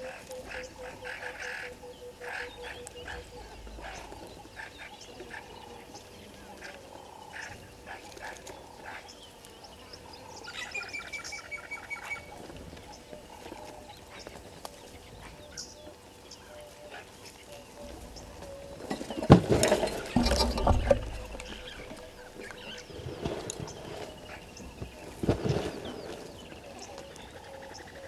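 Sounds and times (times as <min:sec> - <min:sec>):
monkeys rustling twigs: 0:12.1 - 0:28.0.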